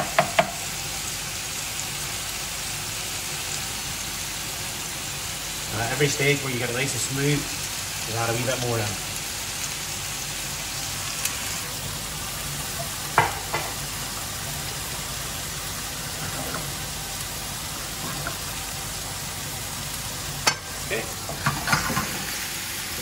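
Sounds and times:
whisk knocking on pan: 0.0 - 0.6, 13.2 - 13.7
chicken frying sizzle: 0.0 - 23.0.

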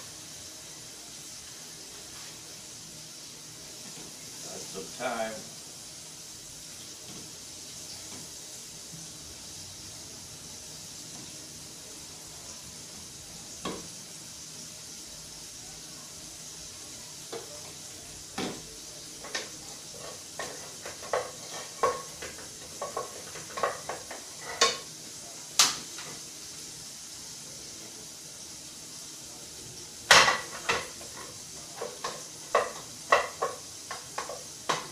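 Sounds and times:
stew pot sizzling: 0.0 - 34.9
wooden spoon knocking pot: 20.4 - 24.8, 31.8 - 34.9.

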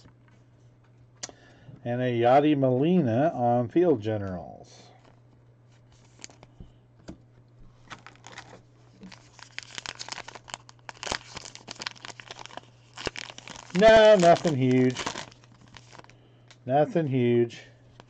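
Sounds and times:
foil wrapper crinkling and tearing: 5.9 - 6.5, 7.8 - 16.2.

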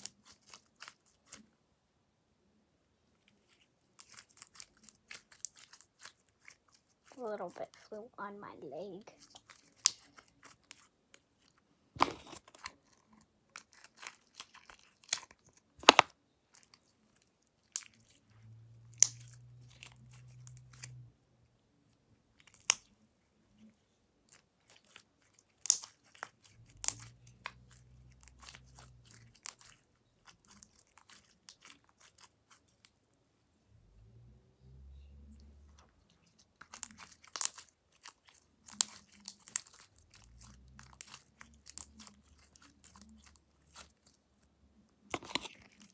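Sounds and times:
slime kneaded with wet clicks: 13.5 - 18.2, 18.8 - 21.0, 24.3 - 33.0.

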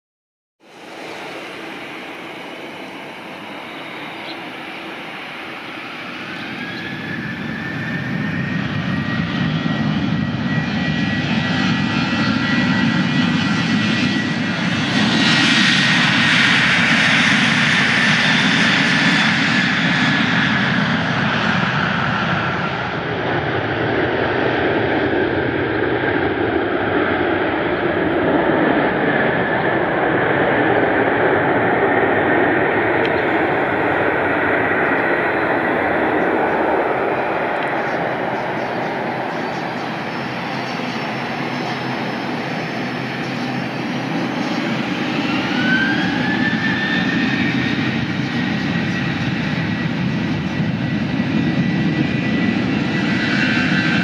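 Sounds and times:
airliner engines passing: 0.6 - 54.0.

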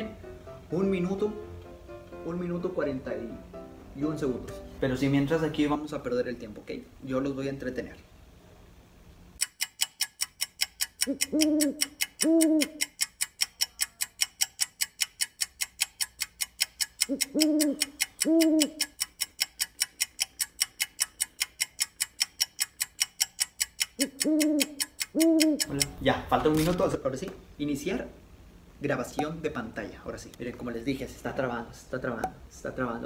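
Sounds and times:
clock ticking rapidly: 9.4 - 26.7
owl hooting: 11.0 - 12.9, 17.0 - 18.9, 24.0 - 25.8.

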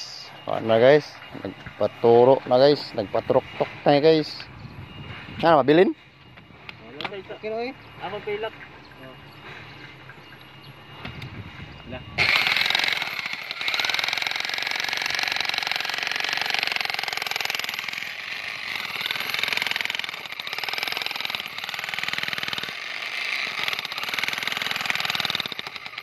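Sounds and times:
demolition hammer pounding rock: 12.2 - 26.0.

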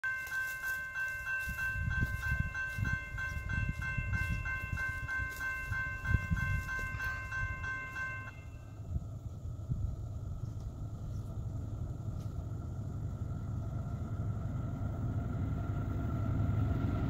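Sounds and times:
railroad crossing bell ringing: 0.0 - 9.0
low uneven rumble: 1.2 - 17.0.

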